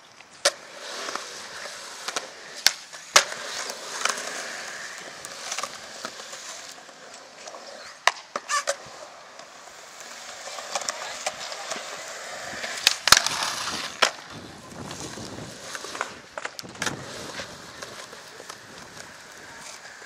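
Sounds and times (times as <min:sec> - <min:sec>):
skateboard wheels rolling on concrete: 0:00.0 - 0:20.0
skateboard clacking on concrete: 0:00.2 - 0:20.0.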